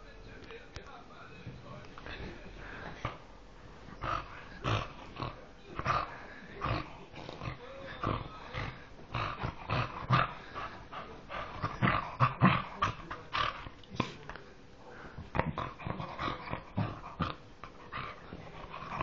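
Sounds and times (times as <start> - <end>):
dog making grunting play noises: 1.9 - 19.0.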